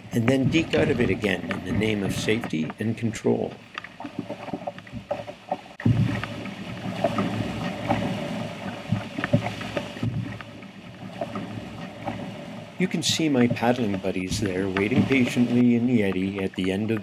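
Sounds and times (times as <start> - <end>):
whitewater rushing: 0.0 - 3.6, 11.1 - 17.0
short knocks on canoe: 13.0 - 16.8.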